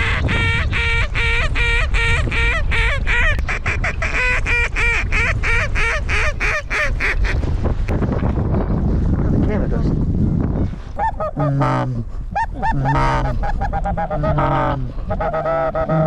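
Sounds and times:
goose honking: 0:11.0 - 0:16.0.

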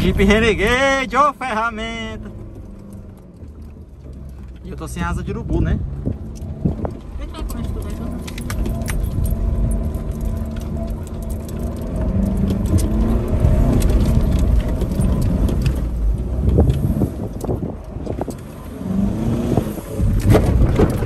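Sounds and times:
car engine under load: 0:00.0 - 0:21.0
car body knocks and rattles: 0:20.1 - 0:21.0.

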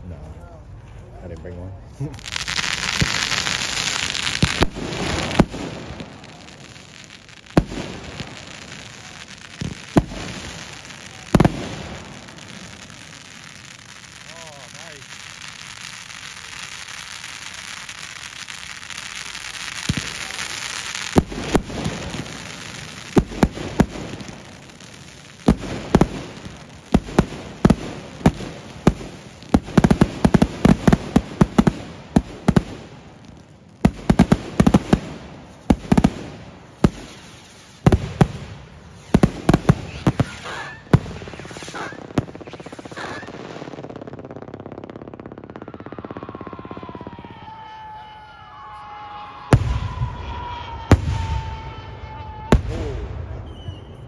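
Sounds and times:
firework hiss: 0:02.1 - 0:47.5
firework bangs: 0:02.1 - 0:54.0
firework whistles: 0:34.0 - 0:44.0, 0:45.4 - 0:54.0.

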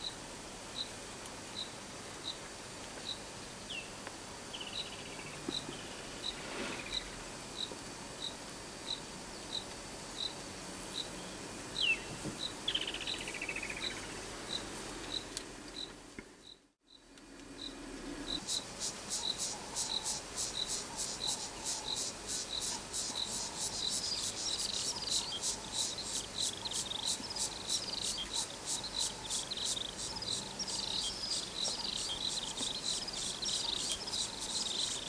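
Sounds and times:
insects chirping: 0:00.0 - 0:02.4, 0:03.0 - 0:35.0
fast ticking insect call: 0:11.8 - 0:35.0.

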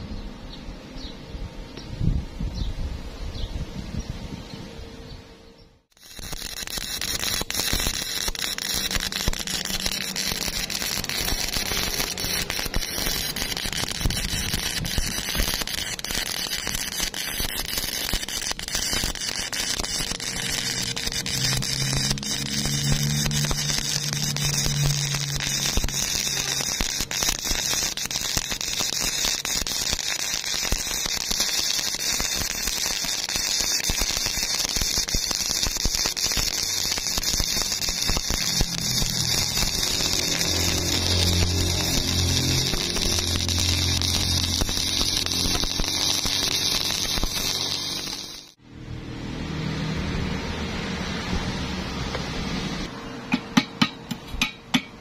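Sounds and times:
welding arc crackling and sizzling: 0:05.9 - 0:48.6.

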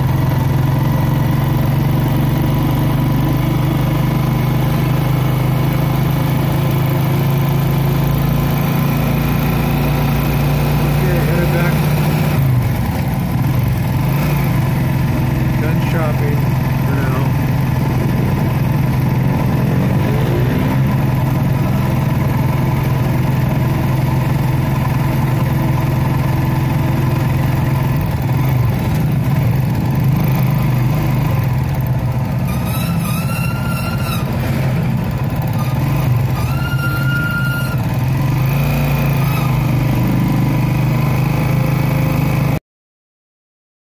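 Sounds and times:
motorcycle engine running: 0:00.0 - 0:42.6
road and wind noise: 0:00.0 - 0:42.6
short high-pitched tones: 0:36.4 - 0:37.8.

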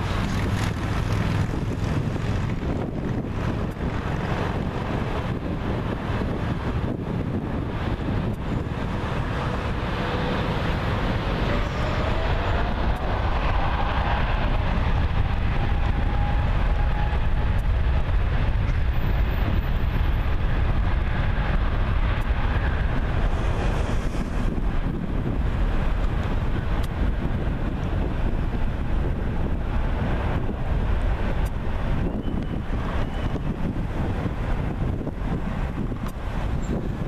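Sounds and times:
jet engines deep rumble: 0:00.0 - 0:37.0
jet engine whine rising: 0:09.0 - 0:27.3.

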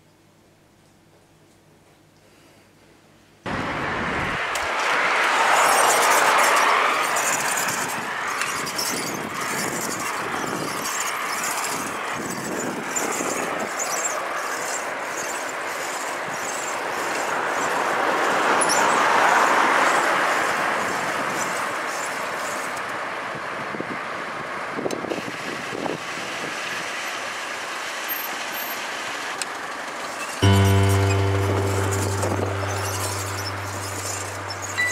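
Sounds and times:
tyre road and wind noise: 0:03.5 - 0:30.4.

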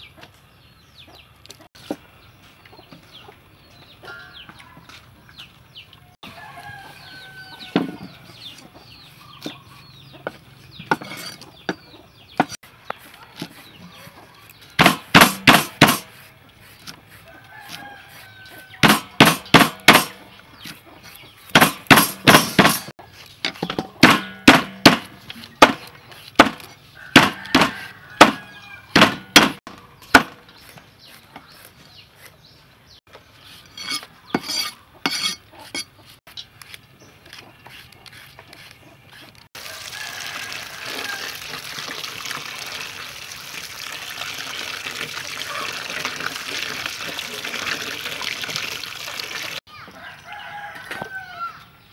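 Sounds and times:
chickens clucking: 0:00.0 - 0:14.7, 0:20.2 - 0:21.5, 0:25.3 - 0:39.5, 0:45.2 - 0:46.6
cleaver chopping on wooden block: 0:14.8 - 0:16.1, 0:18.8 - 0:20.2, 0:21.5 - 0:22.9, 0:23.6 - 0:30.4.

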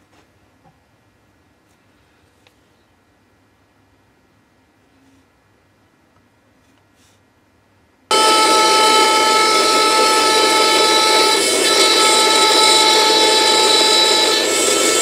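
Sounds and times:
bandsaw cutting wood: 0:08.1 - 0:15.0.

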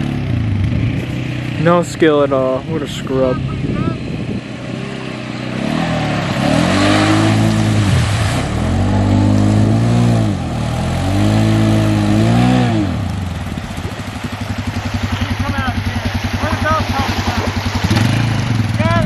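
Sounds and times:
quad bike engine revving: 0:00.0 - 0:19.0
water splashing: 0:04.5 - 0:19.0.

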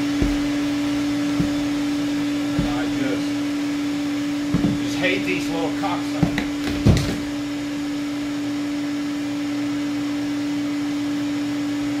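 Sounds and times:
sharp knocks: 0:00.0 - 0:03.3, 0:04.5 - 0:05.0, 0:06.1 - 0:07.3
shop vacuum humming: 0:00.0 - 0:12.0.

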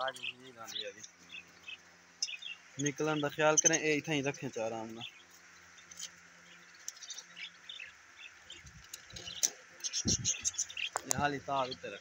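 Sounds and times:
budgerigars chirping: 0:00.0 - 0:12.0.

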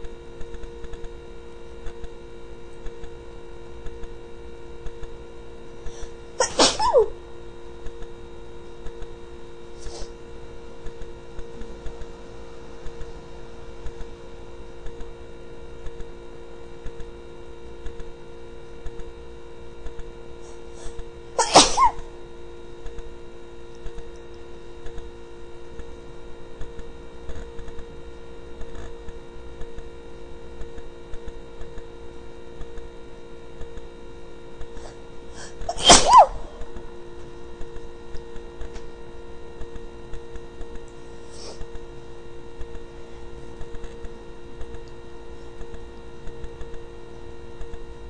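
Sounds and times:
steady hum: 0:00.0 - 0:48.0
person sneezing: 0:06.0 - 0:07.2, 0:09.8 - 0:10.1, 0:20.8 - 0:22.1, 0:35.4 - 0:36.8.

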